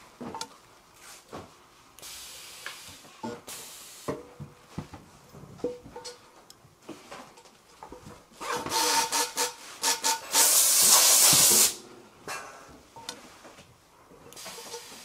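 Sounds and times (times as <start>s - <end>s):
compressed air hissing: 2.0s - 4.1s, 8.7s - 11.8s, 14.4s - 15.0s.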